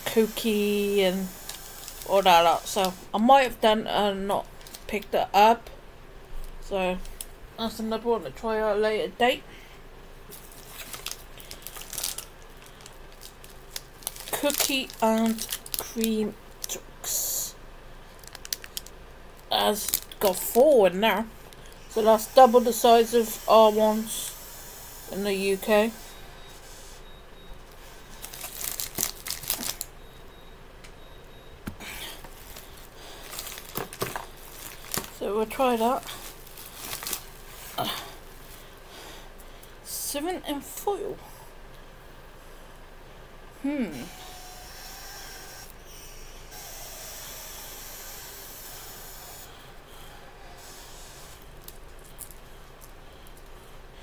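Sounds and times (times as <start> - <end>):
plastic wrapper crinkling: 0.1 - 3.0, 4.5 - 5.0, 10.3 - 16.8, 18.1 - 20.6, 28.1 - 30.0, 32.2 - 37.7, 51.4 - 53.5.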